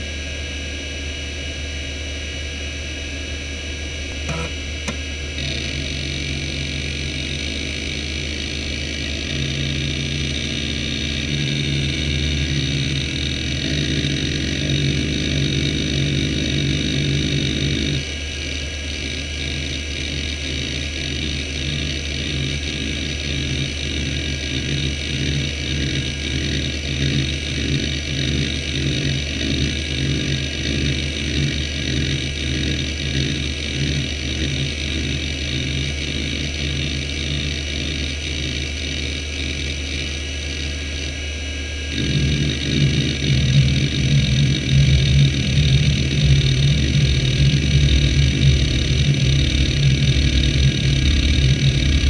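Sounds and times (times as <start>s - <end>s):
hard drive spindle whirring: 0.0s - 52.0s
hard drive heads seeking: 4.2s - 5.5s.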